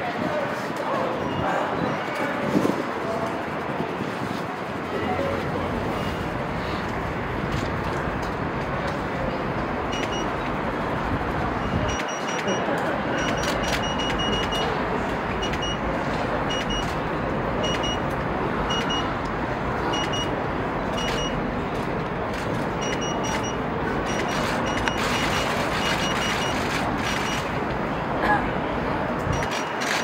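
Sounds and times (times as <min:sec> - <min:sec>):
city noise: 0:00.0 - 0:30.0
outdoor crowd noise: 0:00.0 - 0:30.0
short high electronic beeps: 0:09.9 - 0:10.3, 0:11.6 - 0:14.7, 0:22.8 - 0:26.6, 0:29.3 - 0:30.0.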